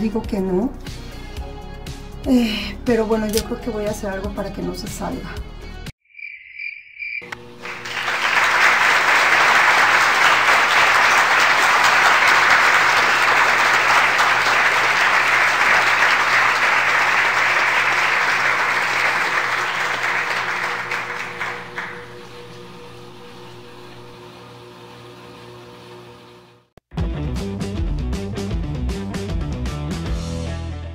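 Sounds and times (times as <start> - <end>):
crickets chirping: 6.0 - 7.4
crowd applause: 7.4 - 24.0.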